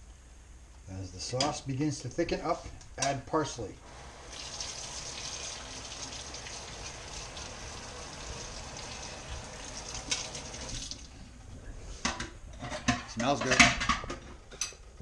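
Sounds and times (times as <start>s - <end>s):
faucet running into metal sink: 4.2s - 11.1s.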